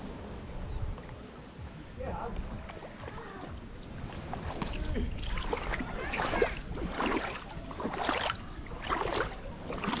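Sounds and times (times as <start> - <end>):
river water splashing: 2.5 - 10.0.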